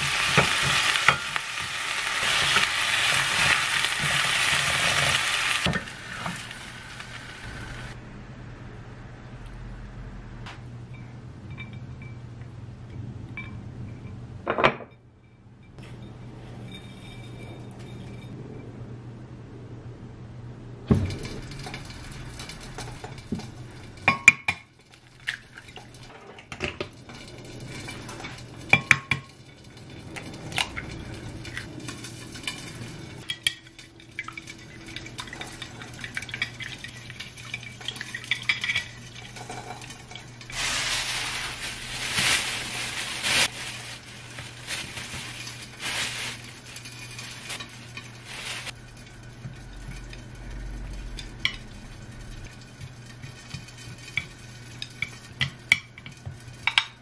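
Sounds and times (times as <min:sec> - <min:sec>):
plastic bag rustling: 0:39.1 - 0:49.0.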